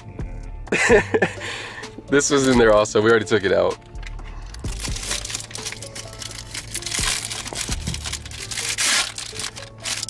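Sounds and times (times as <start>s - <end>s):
soft background music: 0.0s - 10.0s
paper crinkling: 4.4s - 10.0s.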